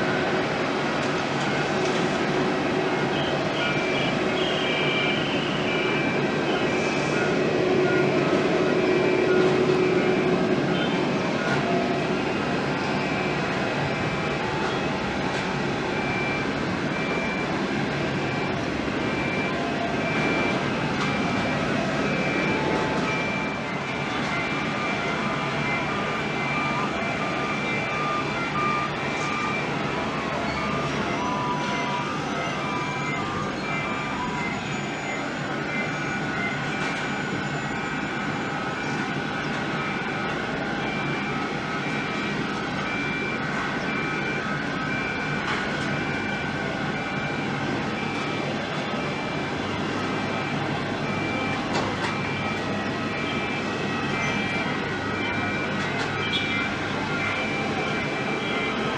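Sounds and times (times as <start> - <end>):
jet engines roaring: 0.0 - 34.4
two-tone electronic beeper: 2.9 - 15.1, 15.9 - 58.9.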